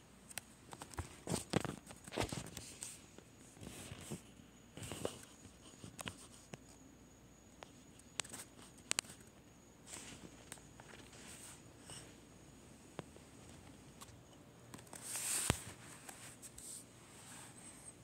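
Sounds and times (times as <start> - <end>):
notebook pages rustling: 0.7 - 3.0, 14.8 - 16.8.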